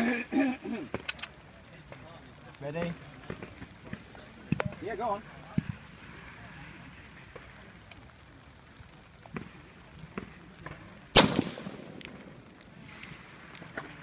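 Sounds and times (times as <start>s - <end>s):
rifle shot: 11.1s - 12.4s.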